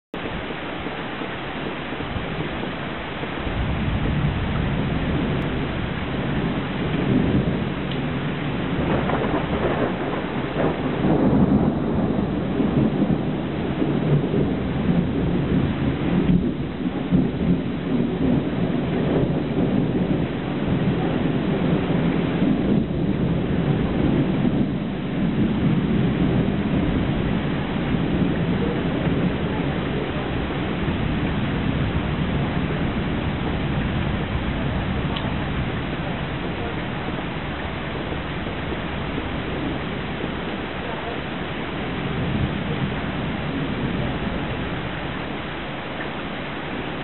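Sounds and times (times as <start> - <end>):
heavy rain pouring: 0.1 - 47.0
rolling thunder rumbling: 0.2 - 47.0.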